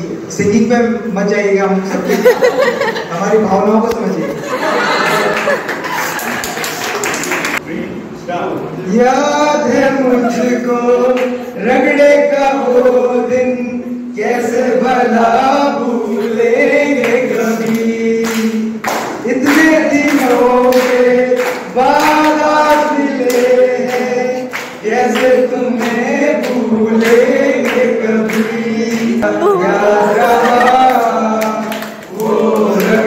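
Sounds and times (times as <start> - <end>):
group of men singing: 8.9 - 33.0.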